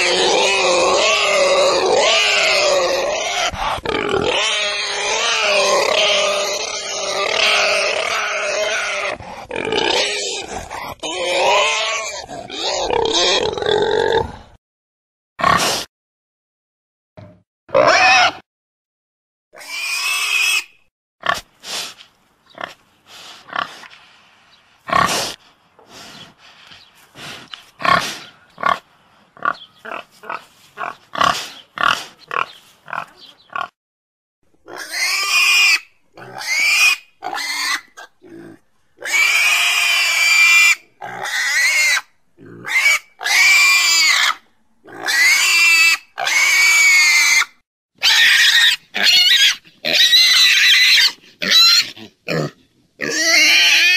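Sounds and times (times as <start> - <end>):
pig squealing: 0.0 - 14.2, 17.7 - 18.4, 19.6 - 21.4, 29.4 - 33.7, 34.6 - 53.9
pig grunting: 0.0 - 14.6, 27.2 - 33.8, 36.2 - 39.8, 41.0 - 43.4, 51.0 - 53.9.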